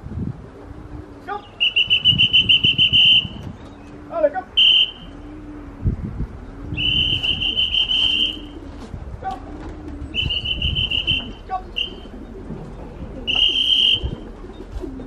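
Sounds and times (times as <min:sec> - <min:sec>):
pigeons cooing: 0:00.0 - 0:15.0
shrill trilled whistle: 0:01.6 - 0:03.4, 0:04.6 - 0:05.0, 0:06.8 - 0:08.4, 0:10.2 - 0:12.0, 0:13.3 - 0:14.1.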